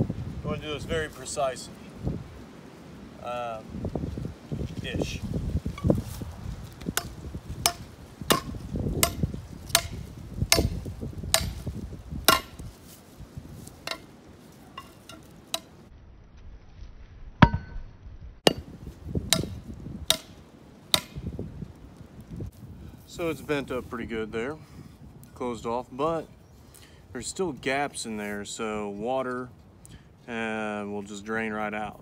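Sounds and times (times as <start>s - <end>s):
axe hammering metal tube: 7.0s - 11.7s, 12.3s - 12.6s, 13.8s - 14.1s, 17.4s - 17.8s, 18.5s - 21.3s.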